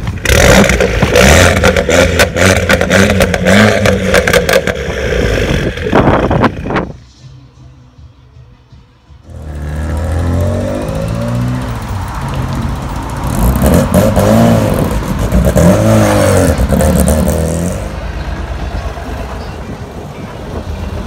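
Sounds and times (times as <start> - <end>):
car engine revving: 0.2 - 6.8, 9.3 - 19.3.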